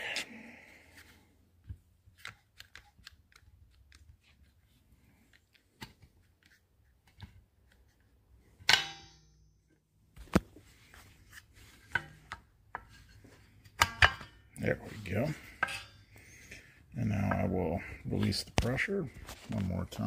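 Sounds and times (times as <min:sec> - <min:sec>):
ringing metal clank: 0:08.7 - 0:09.6.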